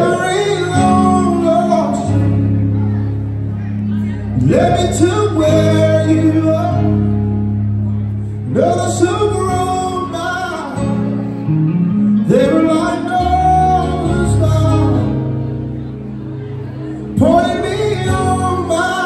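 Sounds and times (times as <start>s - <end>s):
man singing: 0.0s - 3.0s, 4.0s - 7.5s, 8.4s - 11.4s, 12.1s - 15.6s, 17.0s - 19.0s
guitar: 0.0s - 19.0s
keyboard: 0.0s - 19.0s.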